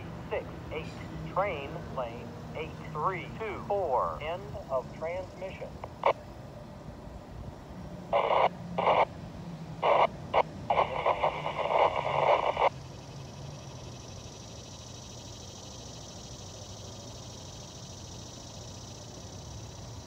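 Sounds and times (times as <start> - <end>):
scanner radio crackling: 0.0 - 6.3, 8.1 - 13.0
faint background hum: 0.0 - 20.0.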